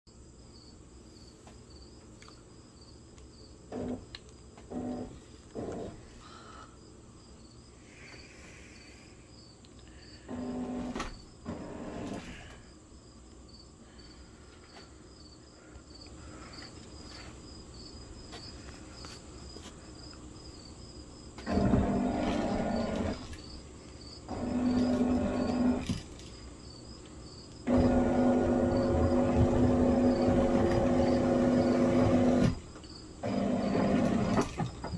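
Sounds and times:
insects chirping: 0.1 - 34.9
robot drive motors running: 21.4 - 23.4, 24.3 - 26.0, 27.7 - 32.6.

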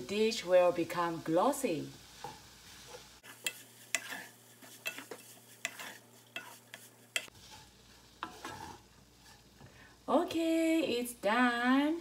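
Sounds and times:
faint sizzle: 0.0 - 12.0
wooden spatula scraping metal pan: 2.2 - 9.7.

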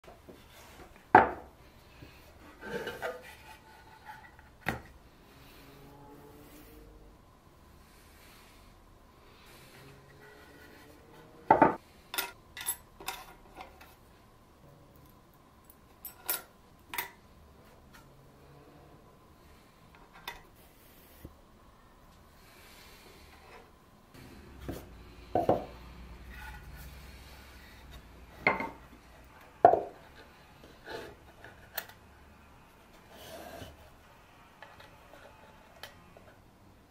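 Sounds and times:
wood rubbing and scraping: 0.3 - 4.7, 24.3 - 31.8.

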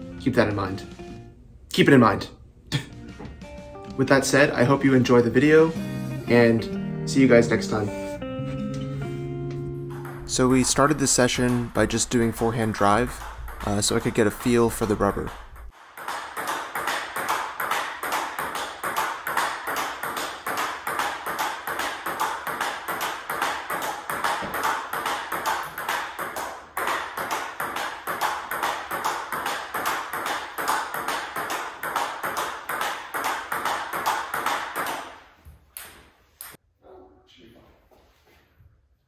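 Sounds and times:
table tennis ball clicking: 9.9 - 35.0.

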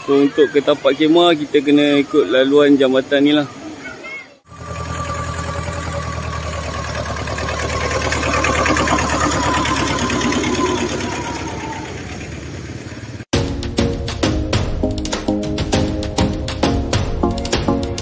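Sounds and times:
vehicle engine running: 4.5 - 13.3.

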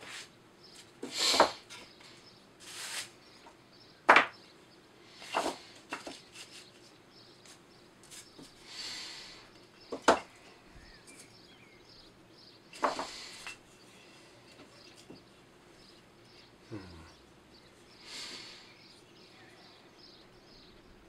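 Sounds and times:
wood pieces clacking on bench: 3.4 - 4.4, 5.2 - 6.4, 9.9 - 10.3, 12.7 - 13.6
wood sliding: 5.2 - 6.7.

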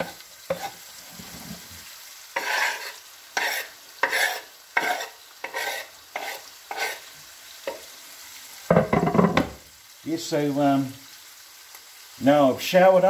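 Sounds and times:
knife scraping cutting board: 0.0 - 1.6, 2.4 - 7.1
faint pan sizzle: 0.0 - 13.0.

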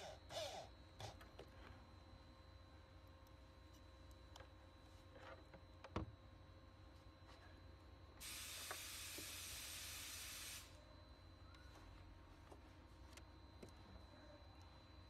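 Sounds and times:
steady high hiss: 8.2 - 10.8.

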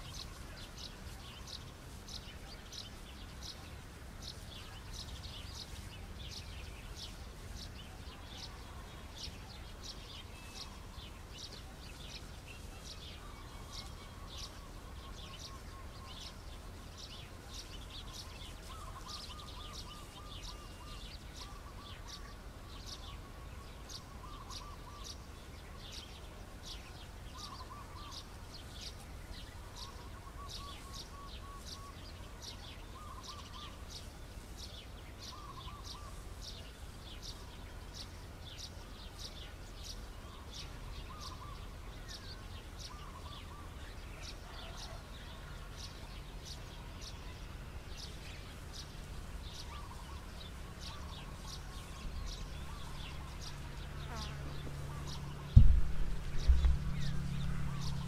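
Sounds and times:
small birds chirping: 0.0 - 58.0
low rumble: 52.0 - 58.0.

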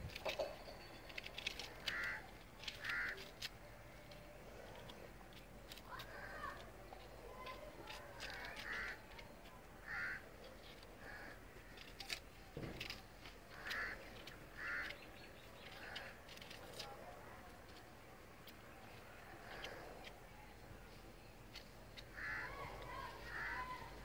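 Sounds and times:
crows cawing: 1.4 - 3.5, 5.7 - 6.7, 7.4 - 9.2, 9.8 - 12.2, 12.8 - 15.0, 15.6 - 16.6, 22.0 - 24.0.

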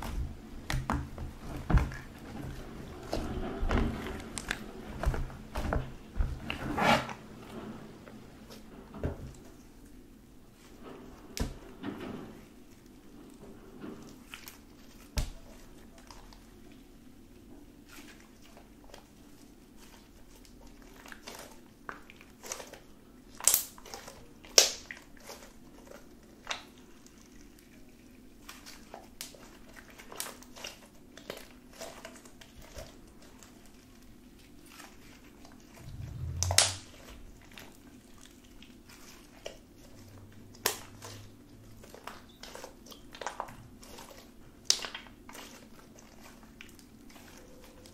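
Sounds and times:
slime crackling and popping: 23.4 - 25.0
faint steady hum: 35.8 - 37.7.

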